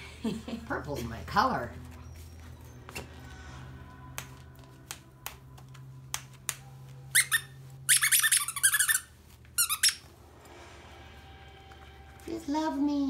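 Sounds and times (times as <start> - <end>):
dog toy squeaking: 7.1 - 10.1.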